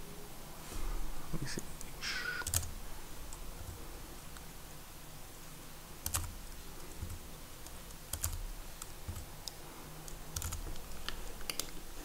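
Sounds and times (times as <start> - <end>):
faint low hum: 0.0 - 12.0
keyboard keystrokes: 2.4 - 2.7, 6.0 - 6.4, 7.0 - 11.8.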